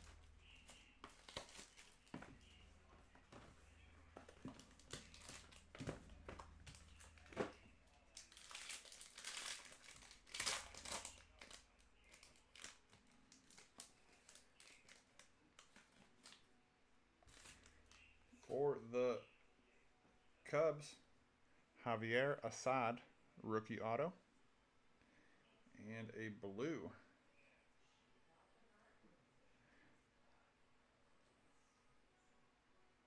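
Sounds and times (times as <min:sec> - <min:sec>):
foil wrapper crinkling: 0:00.0 - 0:02.6, 0:04.2 - 0:16.4.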